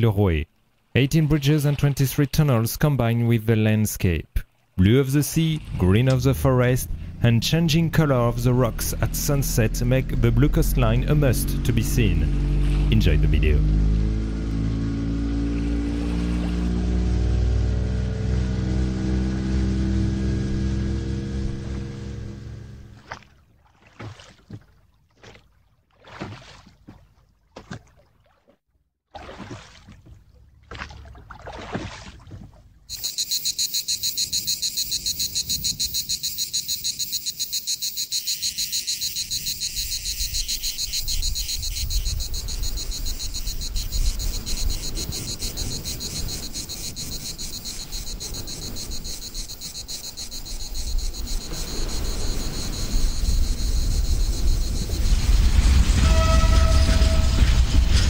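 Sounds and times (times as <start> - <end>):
water swishing around boat: 0.0 - 58.0
cicada chorus: 32.9 - 58.0
train rumble: 41.2 - 58.0.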